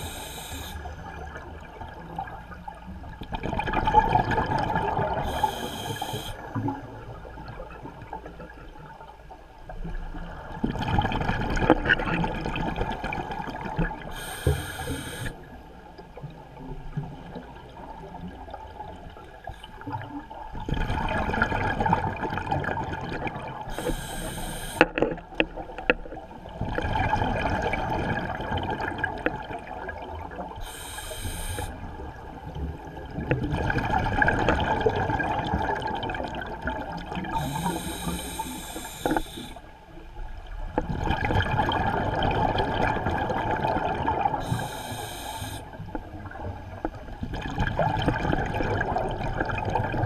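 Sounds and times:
regulator hiss: 0.0s - 0.9s, 5.3s - 6.4s, 14.2s - 15.4s, 23.7s - 24.9s, 30.6s - 31.7s, 37.4s - 39.6s, 44.4s - 45.8s
underwater scuba exhalation bubbles: 40.8s - 44.8s, 47.3s - 50.0s.

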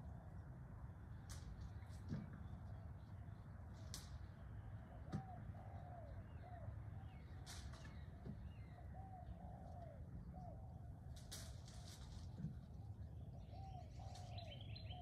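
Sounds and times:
low steady rumble: 0.0s - 15.0s
birds calling: 11.8s - 15.0s.

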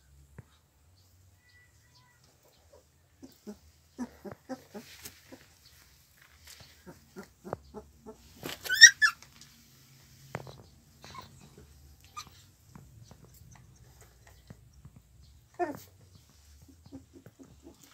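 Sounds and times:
puppies whimpering and grunting: 2.7s - 5.6s, 6.8s - 9.2s, 10.9s - 17.9s
puppy high-pitched squeal: 8.6s - 9.2s, 12.0s - 12.5s.

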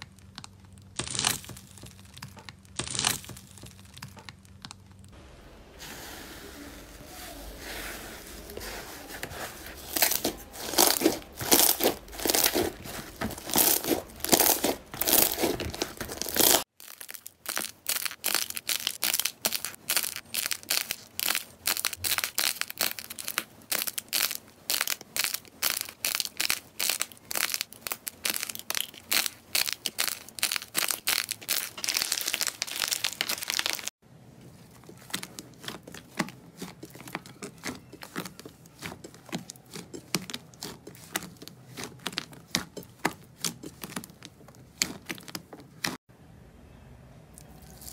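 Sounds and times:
crumbly clay crackling: 0.0s - 46.1s
slime squishing with wet pops: 9.8s - 33.9s, 34.5s - 46.0s.

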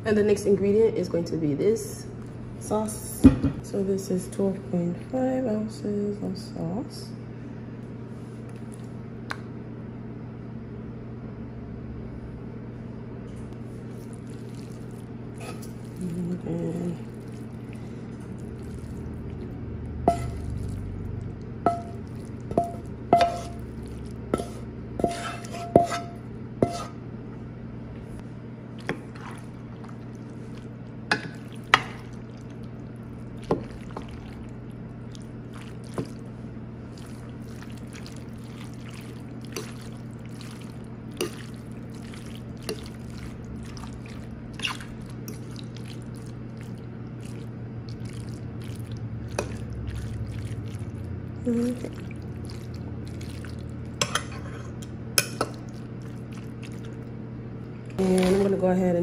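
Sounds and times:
steady low hum: 0.0s - 59.0s
wooden spatula scraping a skillet: 24.4s - 27.0s.

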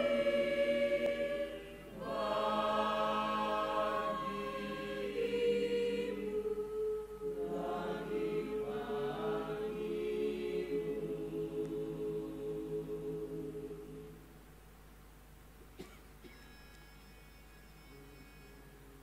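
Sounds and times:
choir singing sustained notes: 0.0s - 14.3s.

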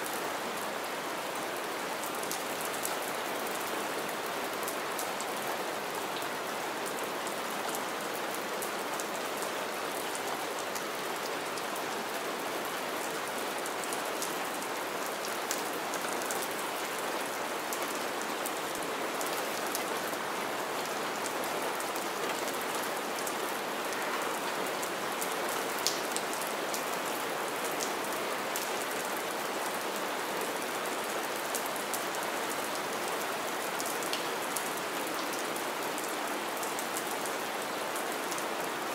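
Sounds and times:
rain falling on ground: 0.0s - 38.9s.

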